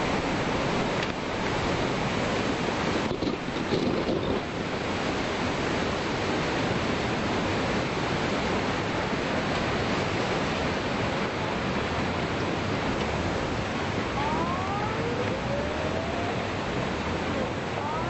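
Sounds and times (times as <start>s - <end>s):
floodwater rushing: 4.5s - 18.0s
faint rising wail: 14.0s - 18.0s.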